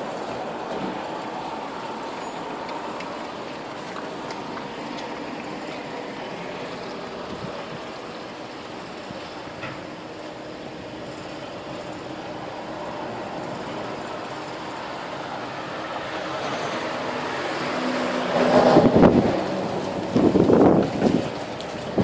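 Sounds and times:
wind gusts buffeting microphone: 4.4 - 9.6, 10.8 - 22.0
wind rushing: 17.2 - 22.0.

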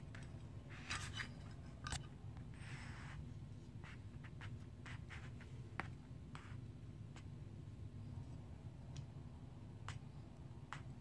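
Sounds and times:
short metal scrape: 0.7 - 1.7.

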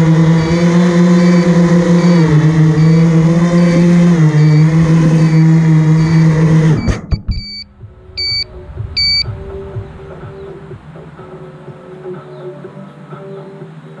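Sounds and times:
drone motors whining: 0.0 - 7.6, 8.2 - 8.4
short electronic beeps: 0.3 - 9.3.

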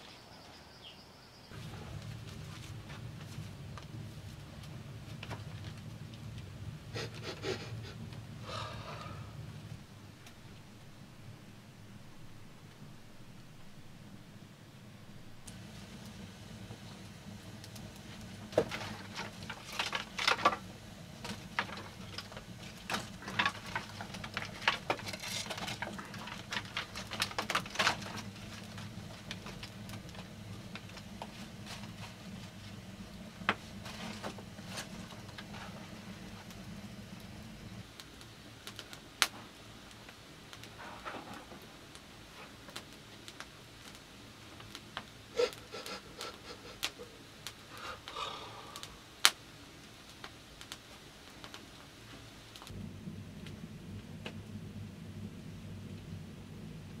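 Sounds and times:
low steady hum: 1.3 - 57.0
firewood clicks and knocks: 1.6 - 6.5, 17.6 - 32.8.

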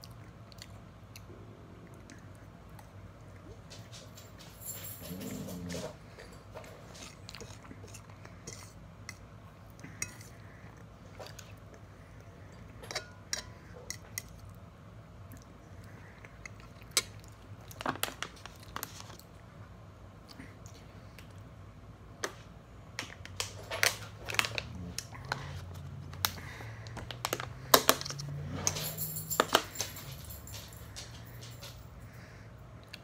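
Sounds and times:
chewing: 0.0 - 3.9, 5.1 - 12.7.

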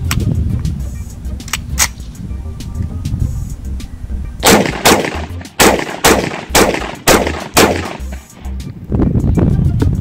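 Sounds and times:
rifle shots: 4.4 - 8.3.

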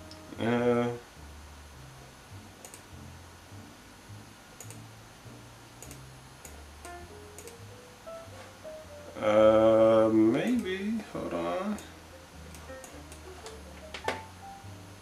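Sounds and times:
background music with bass line: 0.0 - 15.0
faint clicks: 2.6 - 2.9, 4.6 - 4.8, 5.8 - 7.6.

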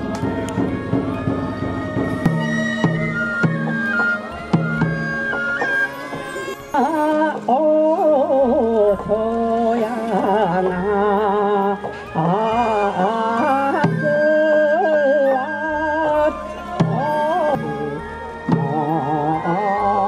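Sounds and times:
flute high note: 0.0 - 7.4, 11.8 - 20.0
person singing folk melody: 5.9 - 20.0.

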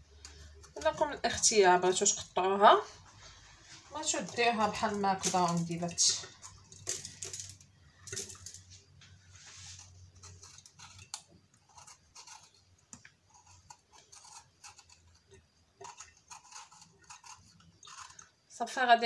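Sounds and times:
knife cutting pepper: 10.2 - 18.2.

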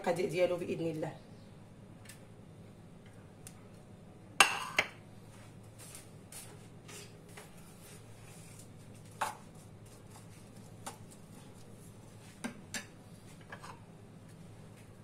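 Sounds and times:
low steady hum: 0.0 - 15.0
wooden spoon stirring onion: 7.8 - 12.5.

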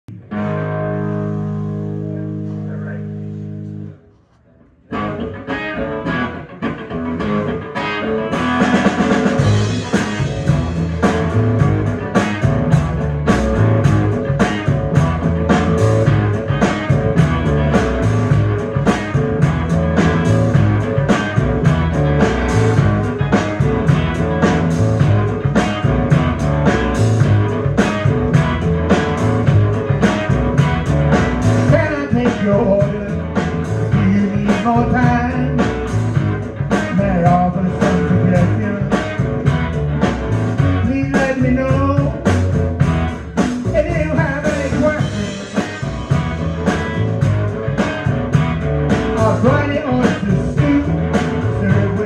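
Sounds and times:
electric guitar: 0.1 - 52.0
drum kit with cymbals: 7.8 - 52.0
plucked double bass: 8.4 - 52.0.

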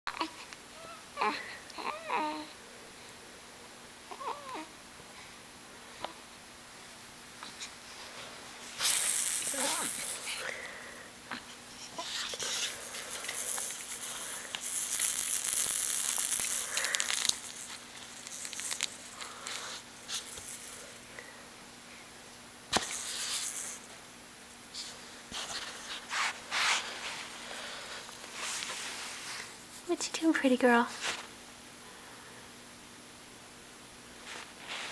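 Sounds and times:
rustling and crinkling handling: 12.0 - 20.8, 24.8 - 29.9, 30.8 - 31.4.

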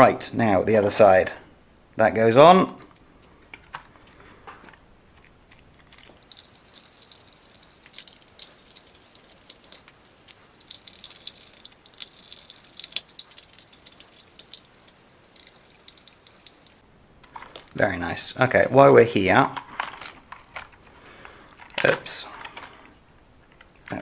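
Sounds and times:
small parts clicking: 4.7 - 17.8.

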